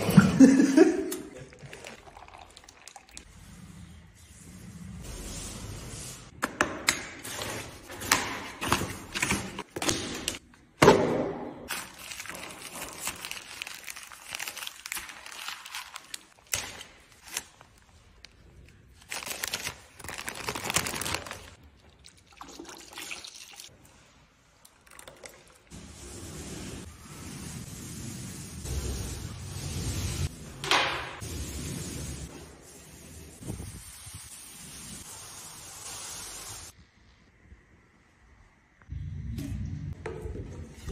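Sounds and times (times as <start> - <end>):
plastic crinkling: 11.7 - 21.6.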